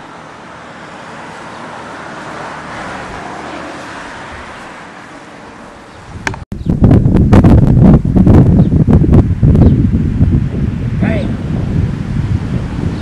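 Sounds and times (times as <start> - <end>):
car road noise passing: 0.0 - 6.4
sharp click: 6.2 - 6.4.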